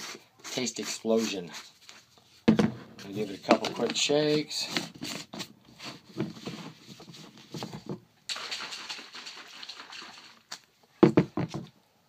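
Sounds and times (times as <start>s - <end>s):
shaker cup lid rattling: 8.3s - 10.5s
liquid sloshing in shaker cup: 8.3s - 10.7s.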